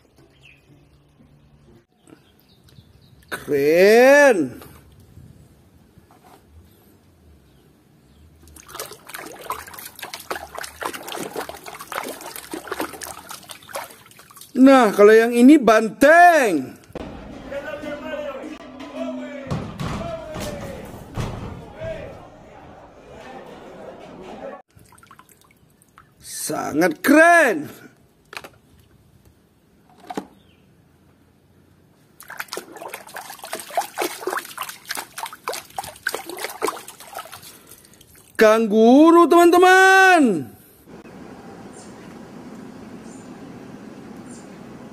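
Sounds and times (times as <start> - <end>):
water trickling and splashing: 8.4 - 15.0, 24.7 - 26.2, 32.1 - 38.4.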